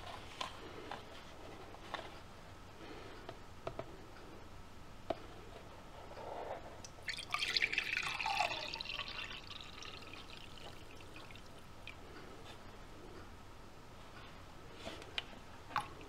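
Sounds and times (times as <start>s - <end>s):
water pouring into a mug: 7.0s - 11.6s.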